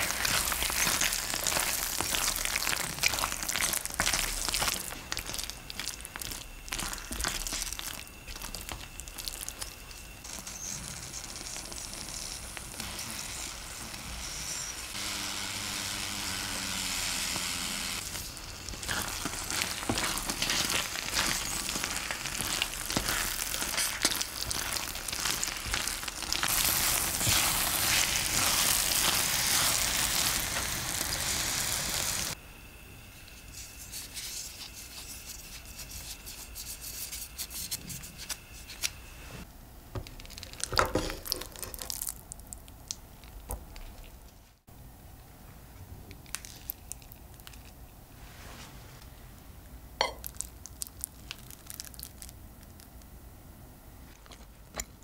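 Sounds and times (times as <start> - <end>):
food sizzling in frying pan: 0.0 - 32.4
spoon stirring and scraping: 18.0 - 30.7, 33.2 - 39.0.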